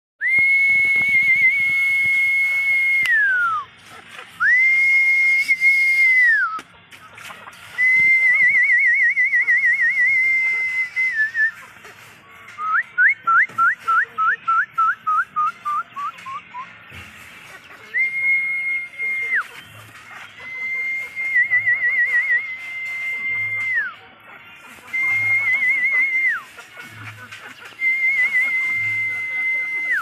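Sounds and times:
person whistling: 0.2 - 3.7, 4.4 - 6.6, 7.8 - 11.7, 12.6 - 16.7, 17.9 - 19.6, 20.3 - 24.0, 24.9 - 26.5, 27.8 - 30.0.

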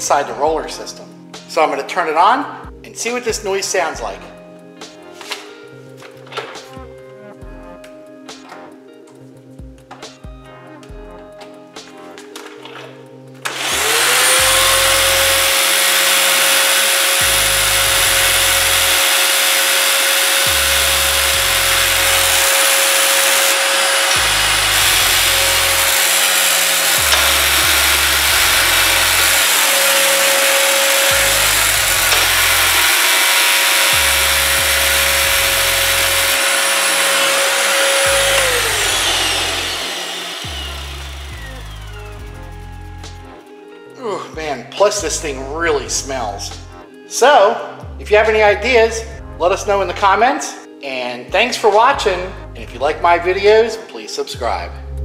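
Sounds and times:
vacuum cleaner running: 13.4 - 43.4.

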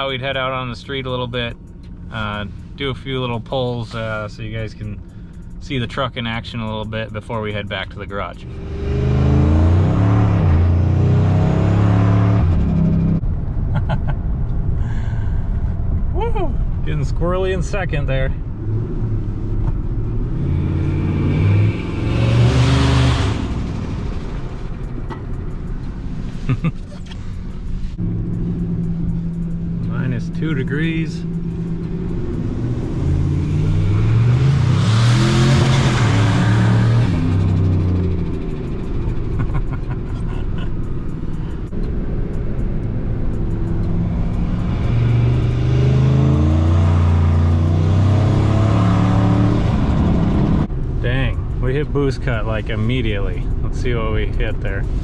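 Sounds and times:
truck engine accelerating hard: 8.2 - 14.8, 18.6 - 25.8, 26.5 - 55.0.

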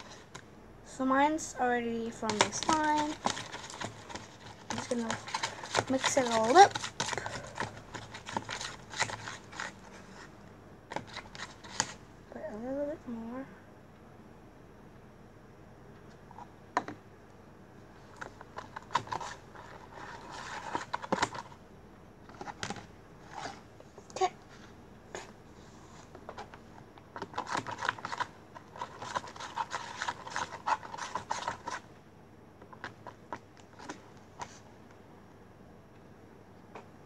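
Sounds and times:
spoon clicking and scraping tub: 2.2 - 9.8.

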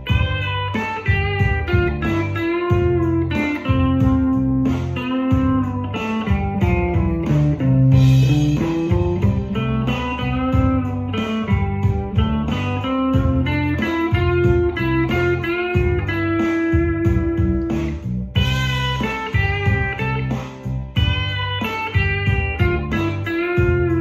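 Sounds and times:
electric guitar lead lines: 0.0 - 24.0
low bass notes: 0.0 - 24.0
steady beat: 0.0 - 24.0.

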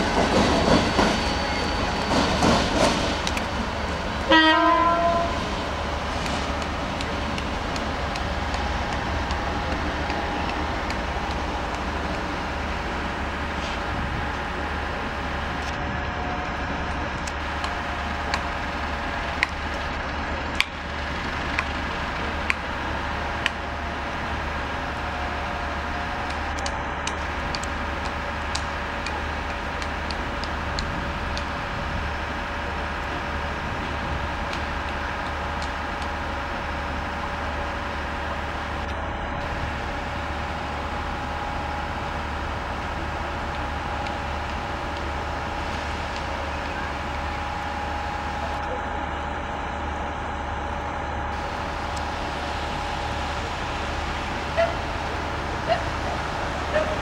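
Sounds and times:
diesel locomotive rumbling: 0.0 - 57.0
sharp clicks: 26.3 - 31.5.

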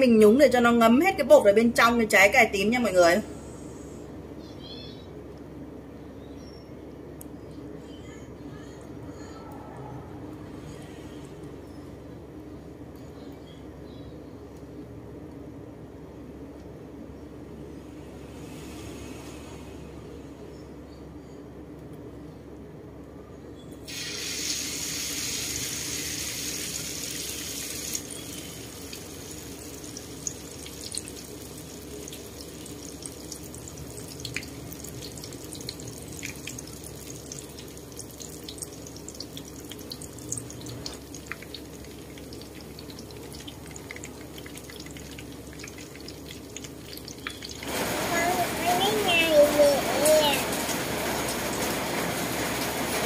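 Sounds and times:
deep-frying sizzle with pops: 23.8 - 53.0.

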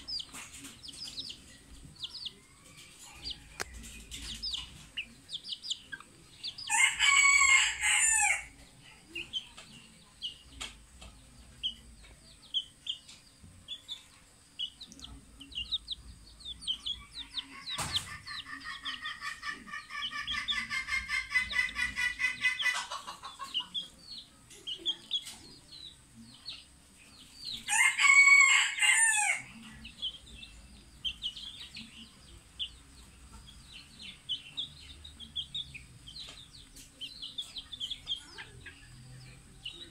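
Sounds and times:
chick peeping: 0.0 - 39.9
chickens clucking: 0.0 - 39.9
rooster crowing: 6.7 - 8.5, 27.7 - 29.5.

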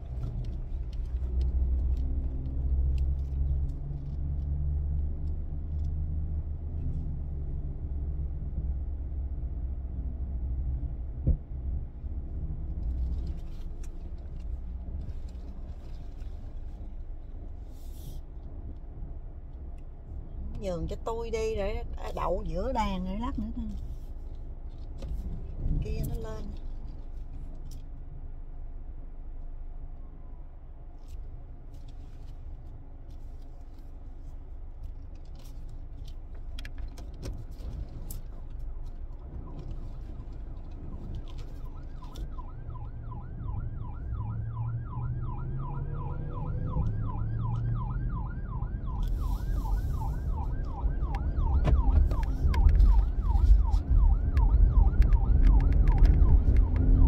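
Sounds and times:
road rumble: 0.0 - 57.0
siren yelping: 41.6 - 57.0.

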